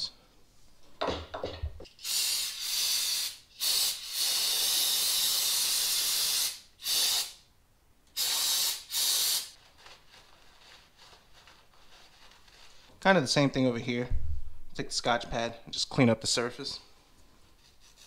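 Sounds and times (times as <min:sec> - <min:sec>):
aerosol spray bursts: 0:02.0 - 0:07.4, 0:08.2 - 0:09.6.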